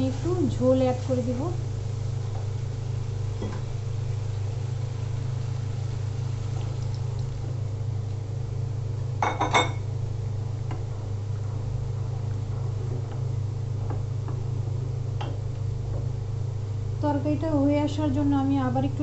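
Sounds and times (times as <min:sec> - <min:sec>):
steady low hum: 0:00.0 - 0:19.0
liquid pouring into pan: 0:04.3 - 0:07.5.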